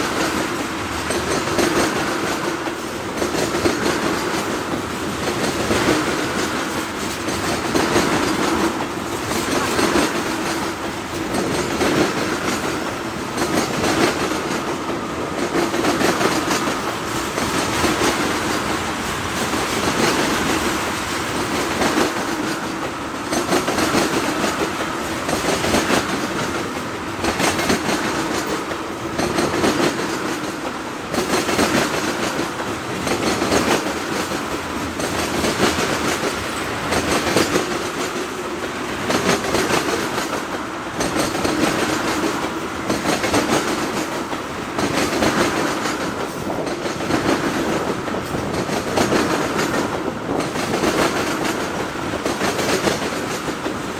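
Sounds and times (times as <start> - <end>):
freight train rolling past: 0.0 - 53.9
wheels clickety-clack on rail: 0.0 - 53.9.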